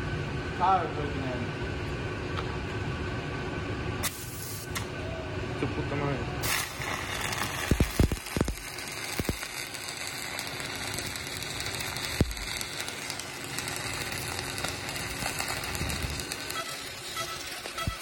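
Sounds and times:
sharp welding pops: 4.0 - 4.9, 6.4 - 18.0
welding arc crackling: 4.0 - 4.9, 6.4 - 18.0.

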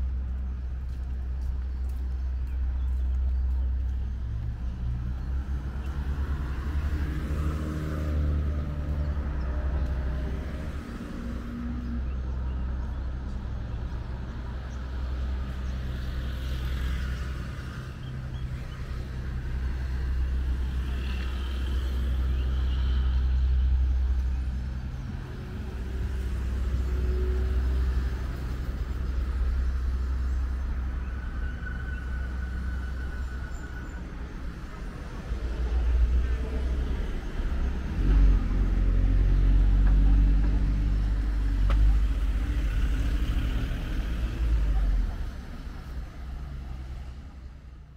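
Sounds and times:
low rumble of vehicle engines: 0.0 - 47.9.

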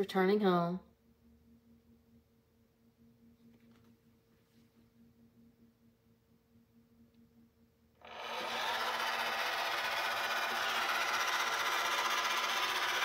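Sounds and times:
robot vacuum motor whirring: 8.0 - 13.0.

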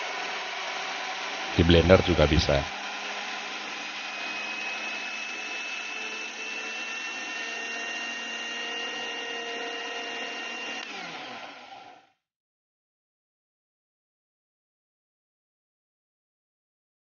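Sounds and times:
blender motor grinding: 0.0 - 12.2.

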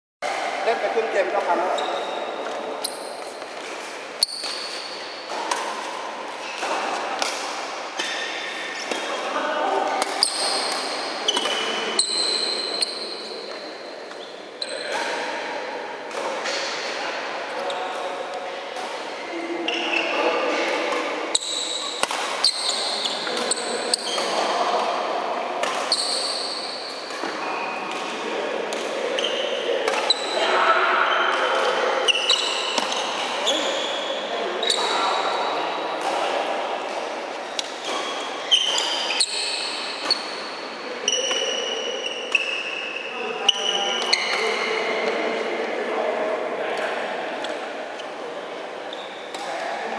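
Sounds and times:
shoes squeaking on court floor: 0.9 - 15.5, 16.1 - 24.8, 25.6 - 30.4, 31.0 - 36.3, 36.9 - 45.2, 48.9 - 49.6
racket hitting shuttlecock: 2.4 - 9.2, 9.8 - 14.2, 14.9 - 17.0, 20.7 - 24.8, 25.6 - 30.4, 31.3 - 33.8, 34.6 - 41.5.

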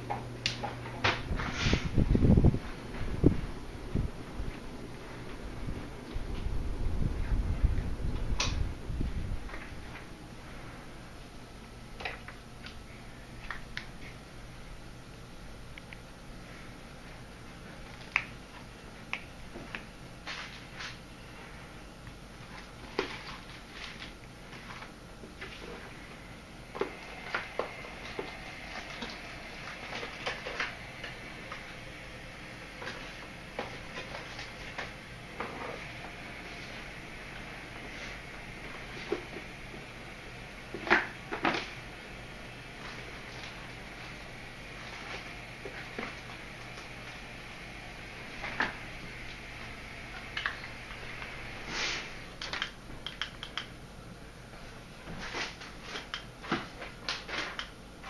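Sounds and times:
faint room hum: 0.0 - 58.0
small clicks and taps: 52.4 - 53.7.

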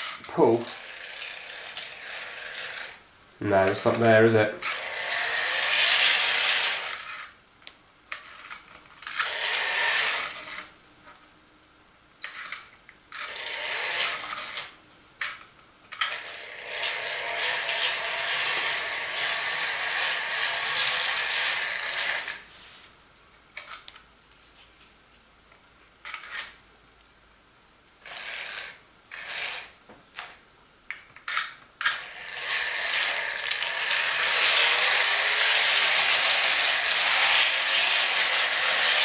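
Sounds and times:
toy train running on track: 0.0 - 3.0, 3.7 - 7.3, 8.1 - 10.7, 12.2 - 22.4, 28.0 - 30.4, 31.3 - 39.0.

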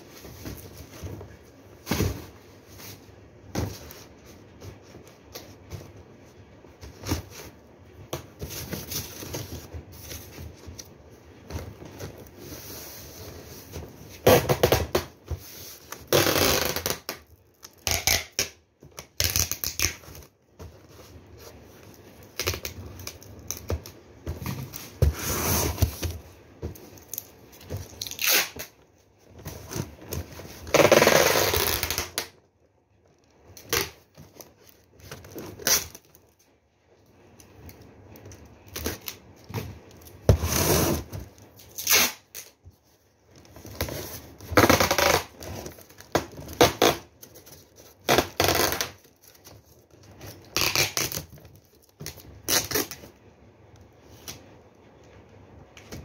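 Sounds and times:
tape ripping off roll: 14.1 - 15.2, 15.9 - 20.3, 27.0 - 28.8, 30.6 - 32.4, 38.6 - 42.6, 43.6 - 49.5, 50.2 - 53.2
cardboard scraping: 20.0 - 31.9, 38.9 - 41.8.

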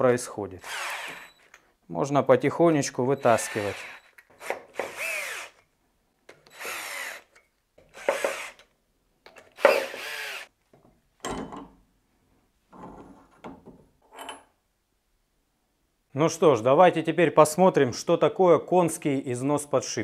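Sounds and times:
cordless drill driving bolts: 0.6 - 1.6, 3.2 - 5.6, 6.4 - 8.7, 9.4 - 10.5.

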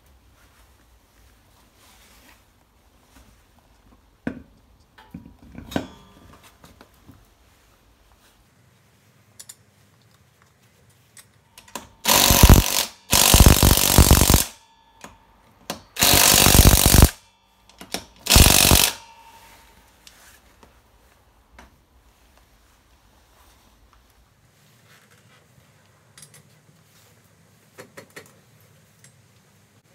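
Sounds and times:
impact wrench bursts: 11.8 - 14.6, 16.0 - 17.2, 17.9 - 19.2.

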